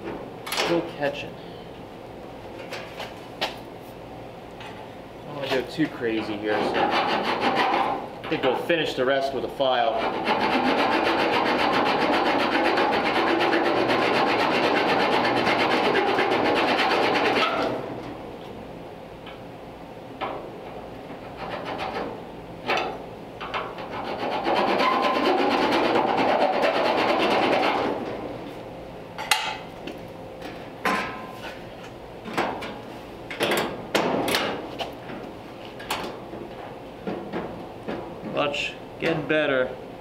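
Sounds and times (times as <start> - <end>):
hand file rasping on steel: 6.7 - 7.9, 9.9 - 17.4, 24.0 - 27.7.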